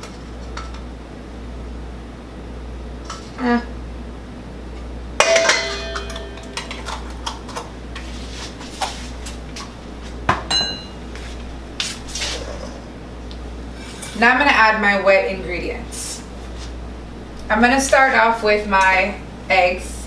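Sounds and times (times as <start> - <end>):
metal spoon clinking on bowl: 5.2 - 7.0, 10.5 - 11.0.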